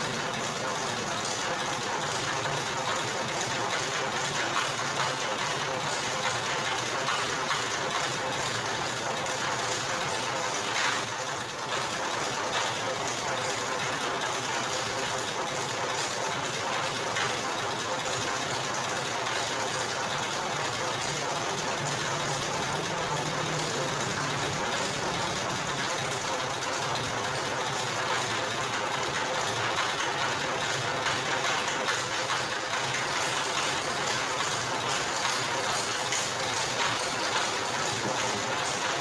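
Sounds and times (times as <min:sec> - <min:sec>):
sugarcane crushing machine running: 0:00.0 - 0:39.0.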